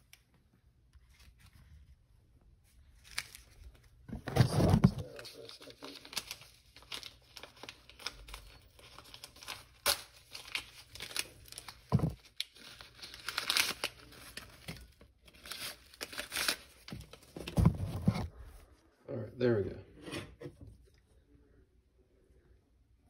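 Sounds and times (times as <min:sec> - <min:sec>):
packaging crinkling and tearing: 0:02.8 - 0:18.2.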